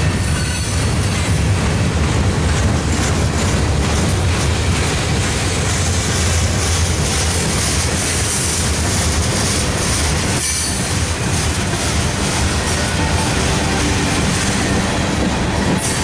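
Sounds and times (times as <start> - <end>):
freight train wheels clattering: 0.0 - 16.0.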